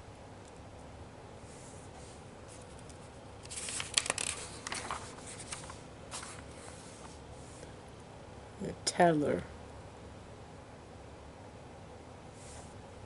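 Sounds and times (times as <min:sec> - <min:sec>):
magazine page rustling: 0:03.4 - 0:07.2.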